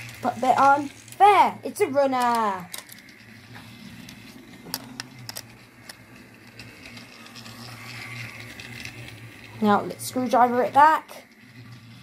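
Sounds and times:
toy train motor hum: 0.0s - 12.0s
small plastic clicks: 2.2s - 3.2s, 4.0s - 9.2s.

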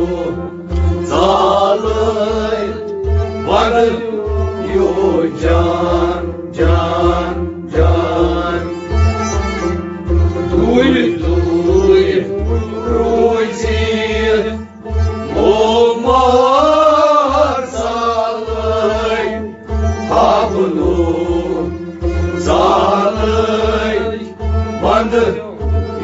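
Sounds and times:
man singing: 0.0s - 9.0s, 10.4s - 26.0s
bowed and plucked strings: 0.0s - 26.0s
harmonium: 0.0s - 26.0s
steady low beat: 4.2s - 17.6s.

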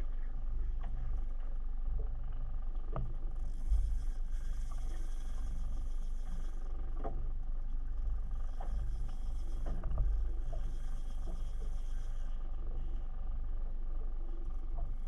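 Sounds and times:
steady low rumble: 0.0s - 15.0s
fishing reel whirring: 3.3s - 6.8s, 8.0s - 13.2s.

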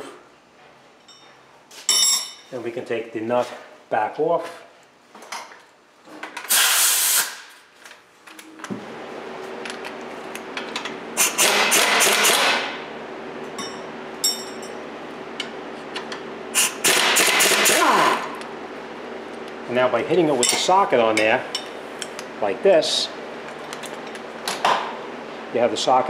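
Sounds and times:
power tool bursts: 6.5s - 7.5s, 11.2s - 12.7s, 16.6s - 18.4s.

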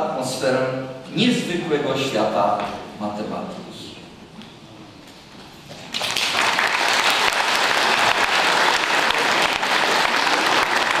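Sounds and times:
audience applause: 5.9s - 11.0s.

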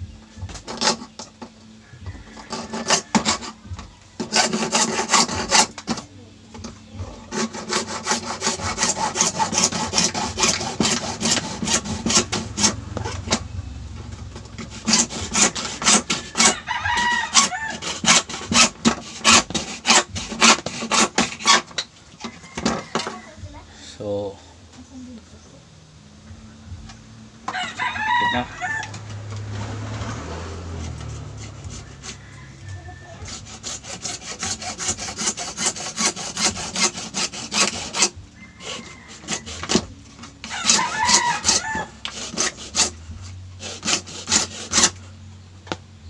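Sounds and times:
hacksaw cutting plastic: 0.5s - 1.5s, 2.3s - 13.5s, 14.2s - 23.2s, 33.2s - 45.1s.

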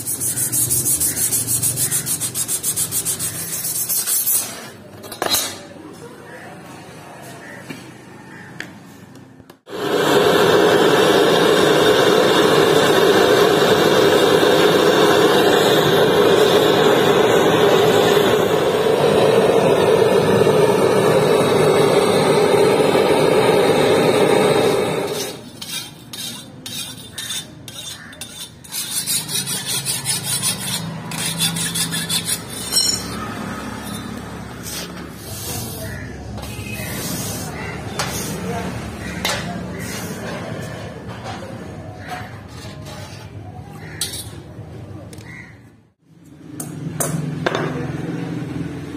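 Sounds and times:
gas blowtorch burning: 9.7s - 25.6s.

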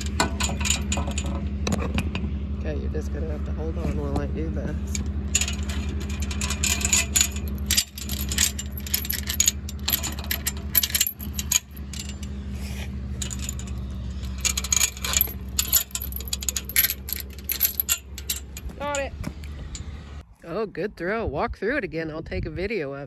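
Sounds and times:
metal chains clinking and rattling: 0.0s - 2.2s, 4.7s - 20.2s
tractor engine running: 0.0s - 20.4s.

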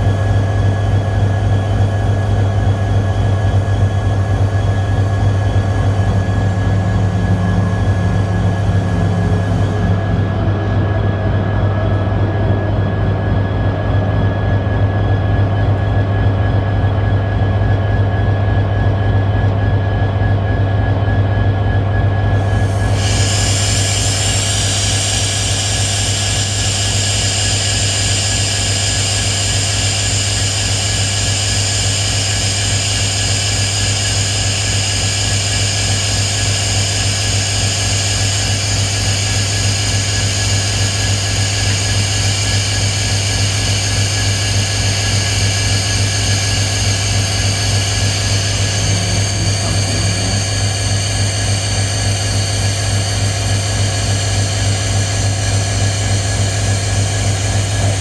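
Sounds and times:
high-pitched whine and hiss: 0.0s - 18.9s, 19.9s - 58.0s
diesel locomotives idling: 0.0s - 19.4s, 22.2s - 54.4s.

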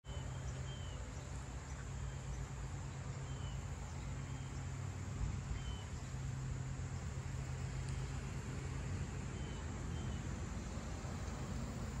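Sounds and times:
bird chirps: 0.1s - 2.5s, 5.5s - 6.2s
low steady rumble: 0.1s - 12.0s.

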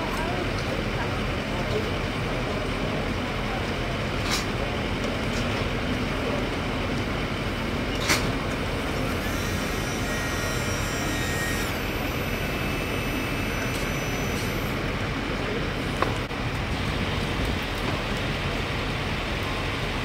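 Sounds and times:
street traffic rumble: 0.0s - 20.0s.

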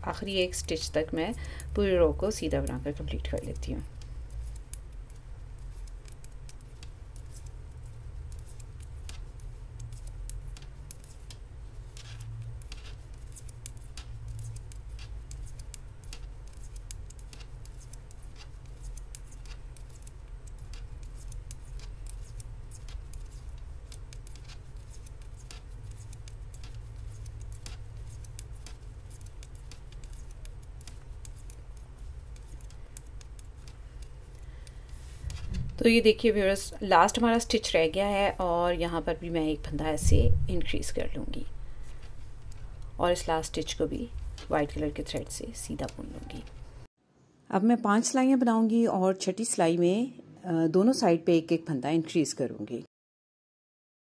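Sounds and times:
low steady rumble: 0.0s - 46.9s
metal knitting needles clicking: 2.4s - 37.8s.

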